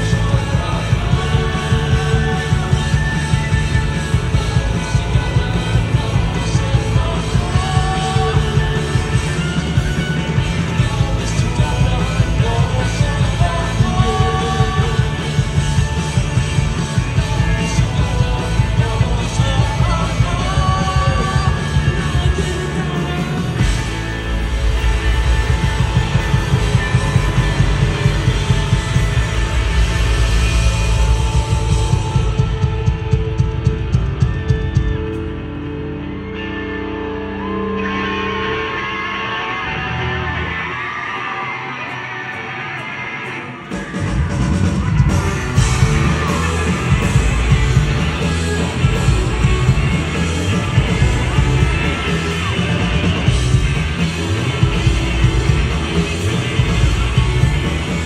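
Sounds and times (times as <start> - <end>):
electric guitar: 0.0 - 58.0
live rock band: 0.0 - 58.0
drum hits: 23.5 - 35.0.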